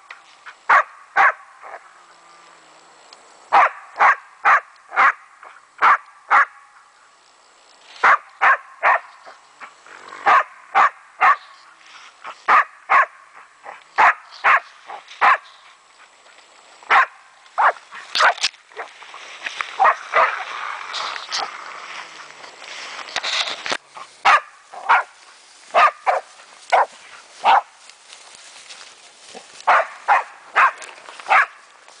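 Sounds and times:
rustle of brush: 0:00.0 - 0:06.0, 0:06.8 - 0:32.0
dog barking: 0:00.7 - 0:01.8, 0:03.5 - 0:05.2, 0:05.8 - 0:06.6, 0:08.0 - 0:09.1, 0:10.2 - 0:11.5, 0:12.5 - 0:15.5, 0:16.9 - 0:18.4, 0:19.8 - 0:20.4, 0:24.2 - 0:25.1, 0:25.7 - 0:27.7, 0:29.7 - 0:31.6.

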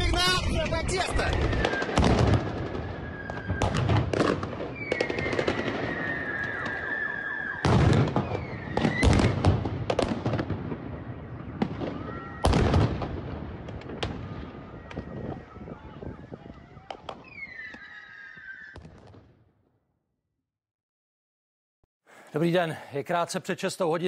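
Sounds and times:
gunfire bangs and blasts: 0:00.5 - 0:02.8, 0:03.5 - 0:05.8, 0:07.6 - 0:10.8
thin high whistle-like tone: 0:05.8 - 0:07.7.

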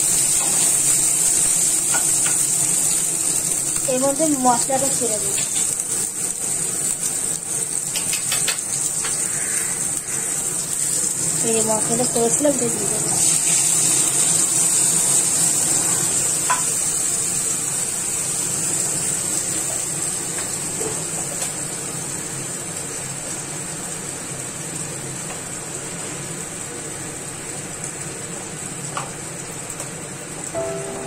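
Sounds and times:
paste sizzling in hot oil: 0:00.0 - 0:23.6.

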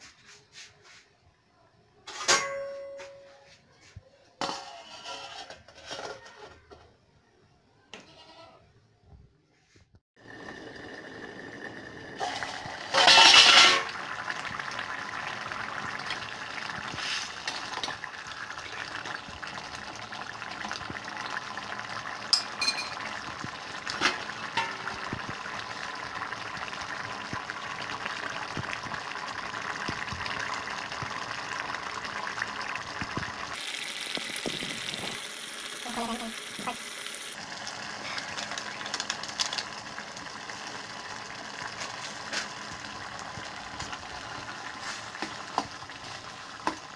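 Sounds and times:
liquid bubbling in pot: 0:10.2 - 0:35.3, 0:37.4 - 0:46.9
metal lid clattering: 0:12.3 - 0:13.9.

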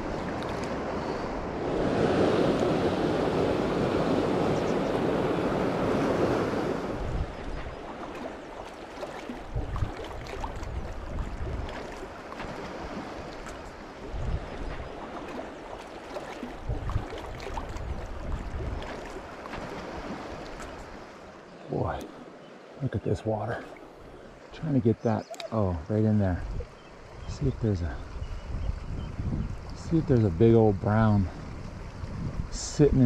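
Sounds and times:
wind thumps on microphone: 0:06.1 - 0:07.8, 0:09.5 - 0:11.9, 0:14.1 - 0:15.0, 0:16.6 - 0:18.9, 0:28.2 - 0:29.8, 0:31.4 - 0:32.6.

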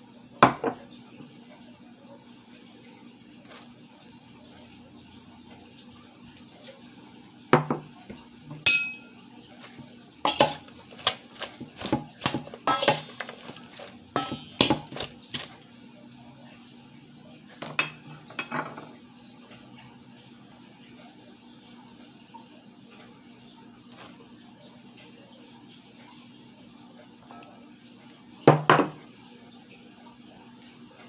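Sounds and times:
metal utensil clanking in steel bowl: 0:08.5 - 0:15.6, 0:17.6 - 0:18.8.

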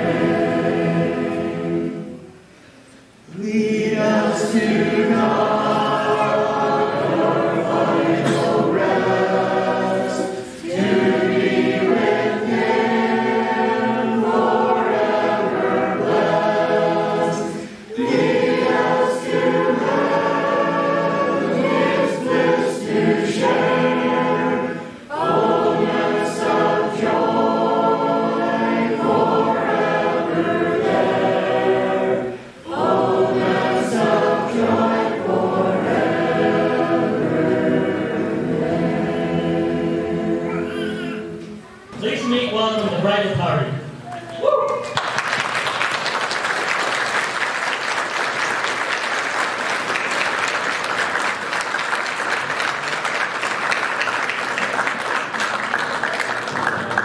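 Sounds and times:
choir singing unaccompanied: 0:00.0 - 0:02.5, 0:03.3 - 0:42.7.

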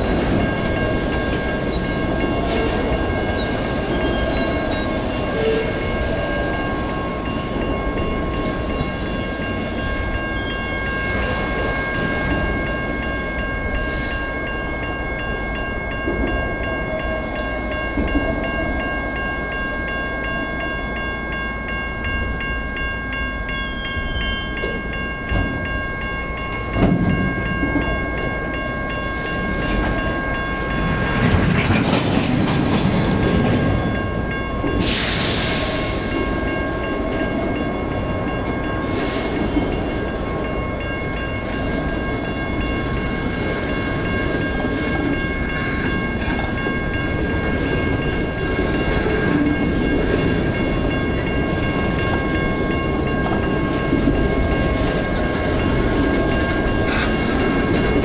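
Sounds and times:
train wheels clattering on rails: 0:00.0 - 0:14.1, 0:16.0 - 0:18.9, 0:24.0 - 0:58.0
high ringing tone: 0:00.0 - 0:31.4.

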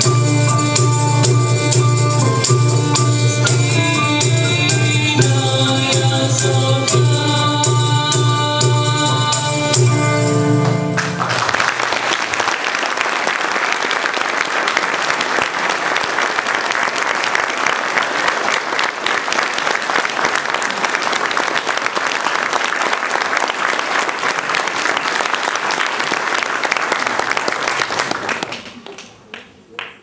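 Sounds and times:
audience applauding: 0:10.6 - 0:30.0.

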